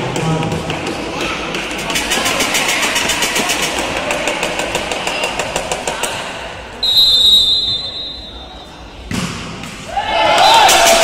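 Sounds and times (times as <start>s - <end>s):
fast rattling clatter: 1.7s - 5.4s
referee's whistle blast: 6.8s - 8.5s.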